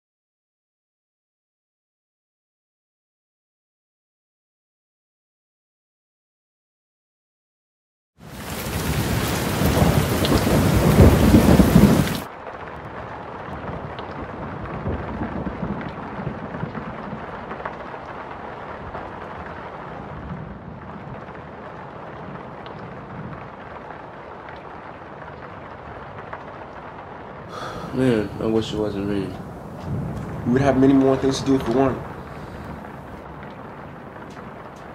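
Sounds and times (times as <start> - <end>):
rain: 8.2 - 34.9
rain patter: 8.2 - 34.9
thunder rumbling: 8.2 - 34.9.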